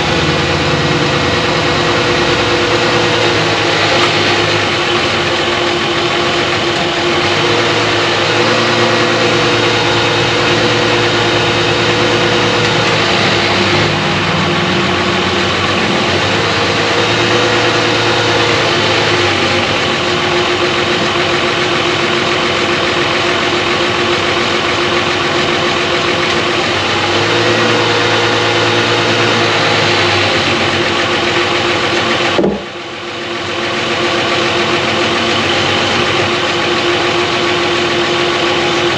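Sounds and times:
car engine idling: 0.0 - 38.9
single knock: 32.4 - 32.7.

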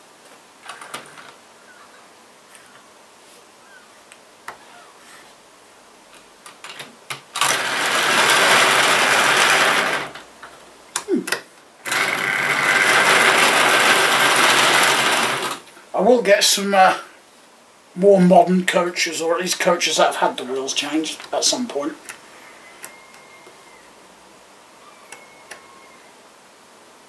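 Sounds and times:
model train whirring past: 7.5 - 10.2, 11.9 - 15.6.

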